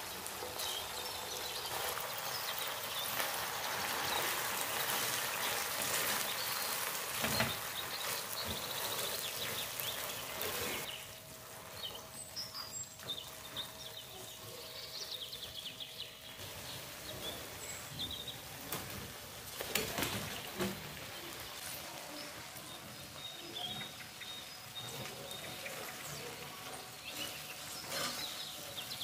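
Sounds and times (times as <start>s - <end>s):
spatula stirring in pan: 0.0s - 15.1s, 23.8s - 29.0s
sauce sizzling in frying pan: 0.0s - 15.2s, 20.4s - 29.0s
prawns knocking into pan: 4.1s - 10.4s.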